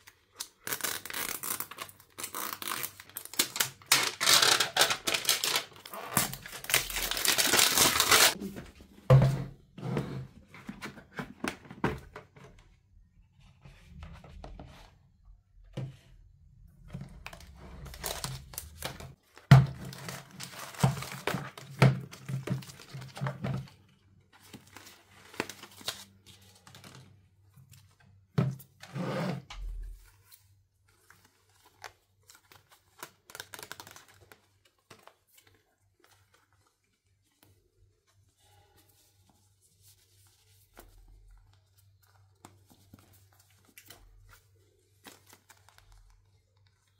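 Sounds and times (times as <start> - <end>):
wrapping tearing and crinkling: 0.0 - 8.4, 17.3 - 23.1, 30.2 - 36.8.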